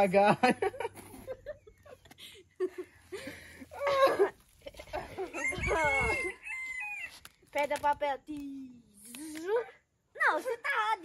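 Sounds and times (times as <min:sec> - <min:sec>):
rooster crowing: 0:05.2 - 0:07.2.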